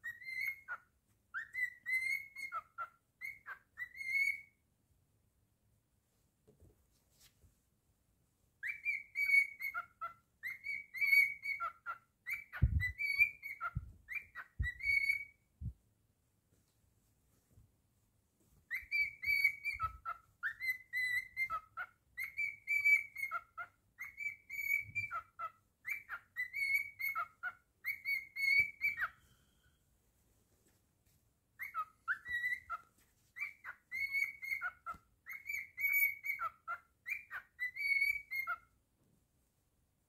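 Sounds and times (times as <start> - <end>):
cockatiel whistling a tune: 0.0 - 4.6, 8.6 - 15.4, 18.7 - 29.8, 31.6 - 38.7.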